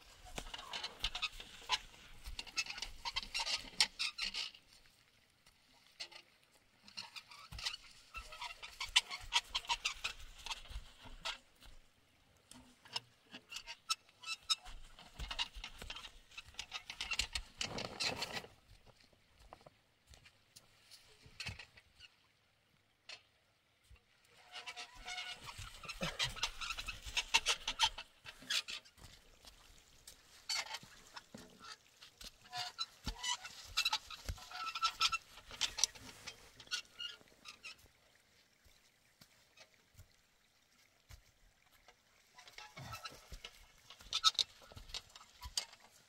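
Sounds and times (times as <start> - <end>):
roller squeaking and creaking: 0.2 - 4.6, 6.8 - 11.4, 12.9 - 18.5, 24.4 - 29.0, 32.4 - 37.8, 42.4 - 46.0
straw crunching: 24.7 - 37.8.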